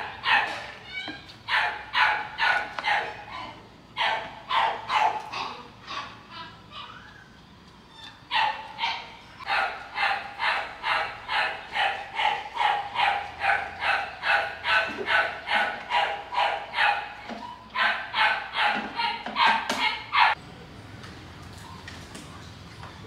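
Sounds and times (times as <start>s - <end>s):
dog barking rapidly: 0.0s - 0.7s, 1.5s - 6.1s, 8.3s - 20.4s.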